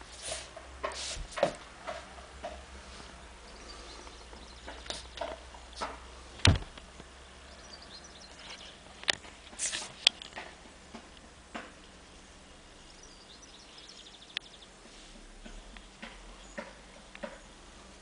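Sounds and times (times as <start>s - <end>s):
soft rustles and clicks: 0.0s - 7.1s, 8.3s - 12.0s
low steady hum: 0.0s - 18.0s.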